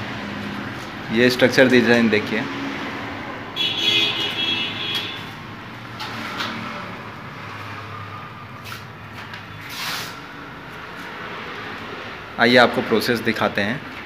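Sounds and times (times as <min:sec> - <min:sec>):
background traffic noise: 0:00.0 - 0:14.0
short hissing sounds: 0:09.7 - 0:10.2.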